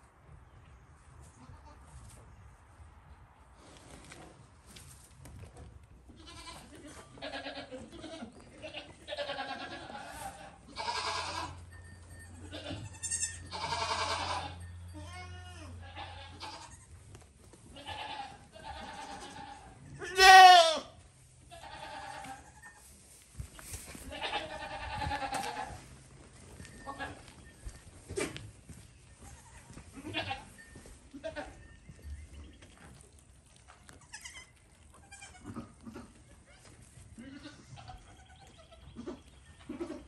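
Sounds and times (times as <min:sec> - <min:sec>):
goats bleating: 0:06.1 - 0:11.7, 0:12.3 - 0:17.0, 0:17.7 - 0:22.9, 0:24.0 - 0:26.0, 0:26.8 - 0:27.4, 0:29.2 - 0:31.6, 0:33.8 - 0:40.0.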